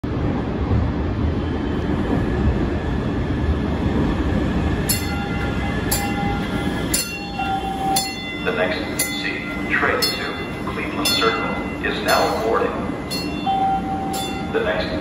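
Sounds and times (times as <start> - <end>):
train wheels and motors rumbling: 0.0 - 15.0
bell-like ringing tone: 4.9 - 14.8.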